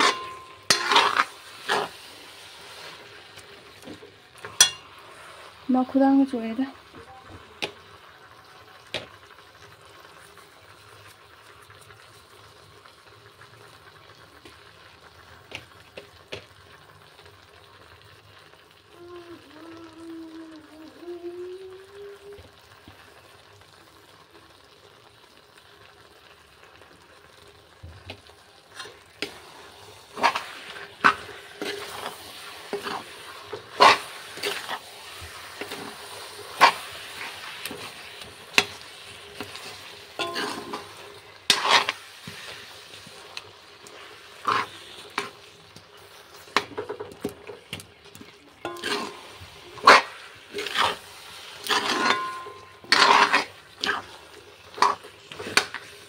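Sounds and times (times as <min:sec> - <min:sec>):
spoon scraping a wok: 0:00.0 - 0:03.2, 0:04.4 - 0:05.6, 0:28.7 - 0:47.7, 0:48.6 - 0:56.0
low sizzle: 0:00.0 - 0:56.0.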